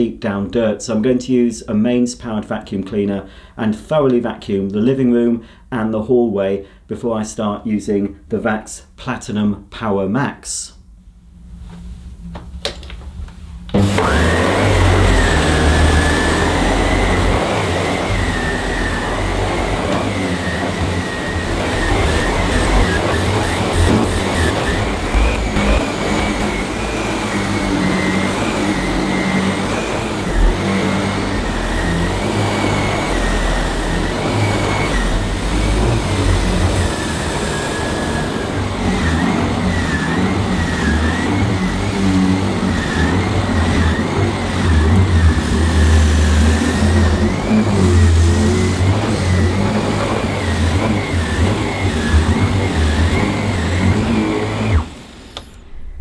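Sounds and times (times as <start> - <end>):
vacuum cleaner running on carpet: 13.7 - 56.0.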